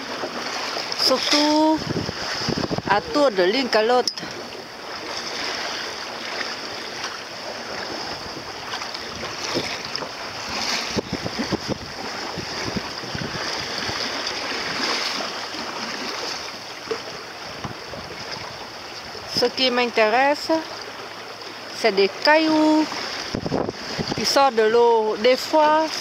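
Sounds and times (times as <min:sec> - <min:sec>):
water lapping against boat hull: 0:00.0 - 0:26.0
water slapping hull: 0:00.0 - 0:26.0
wind buffeting microphone: 0:01.0 - 0:06.8, 0:07.5 - 0:15.9, 0:17.1 - 0:19.6, 0:22.9 - 0:25.1.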